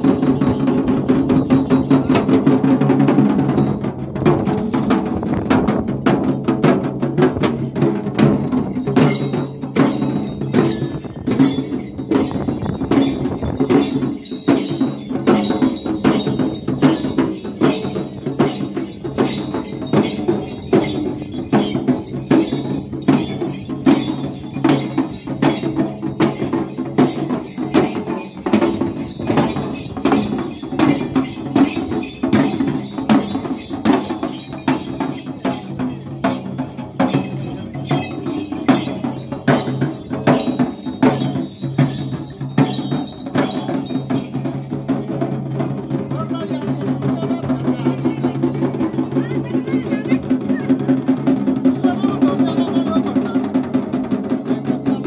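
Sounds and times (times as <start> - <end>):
metallic ringing: 0.0 - 3.9, 8.2 - 47.1
frame drums beaten with sticks: 0.0 - 55.0.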